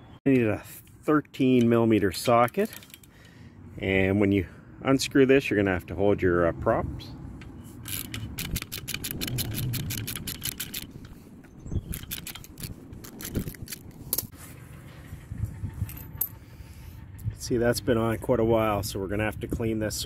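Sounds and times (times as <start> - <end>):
socket ratchet clicking rapidly: 7.8 - 11.2, 11.8 - 13.8.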